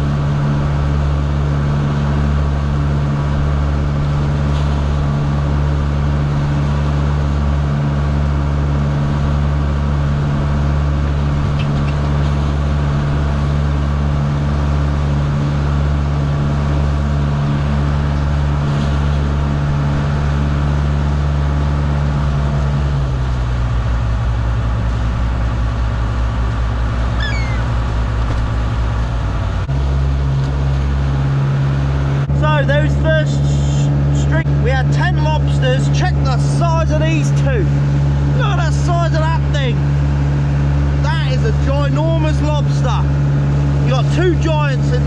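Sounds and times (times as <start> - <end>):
boat diesel engine running: 0.0 - 45.0
short high falling calls: 27.1 - 27.8.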